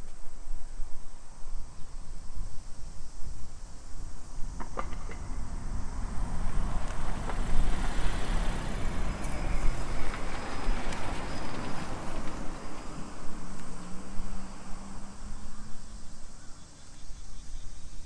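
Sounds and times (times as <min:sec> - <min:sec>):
steady low traffic rumble: 0:00.0 - 0:18.0
car driving past: 0:04.4 - 0:15.8.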